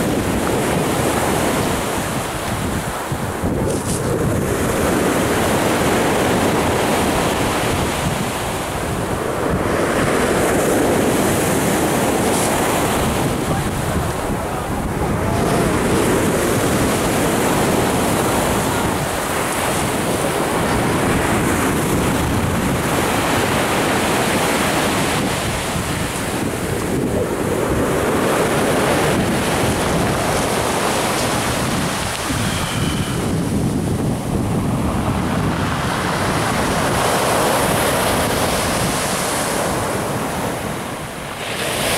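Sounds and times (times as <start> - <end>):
surf on pebble shore: 0.0 - 41.9
wind buffeting microphone: 0.0 - 41.9.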